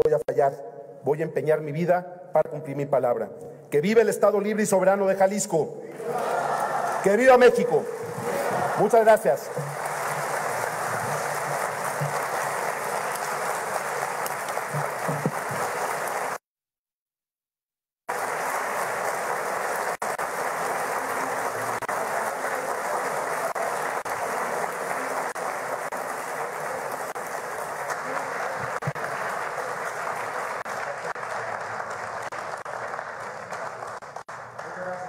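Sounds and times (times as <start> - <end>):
large audience applauding: 5.9 - 16.4, 18.1 - 35.0.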